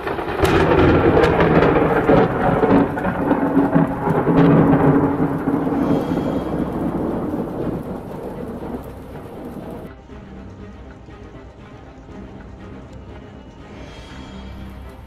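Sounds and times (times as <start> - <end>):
loud thunder rumbling: 0.0 - 9.9.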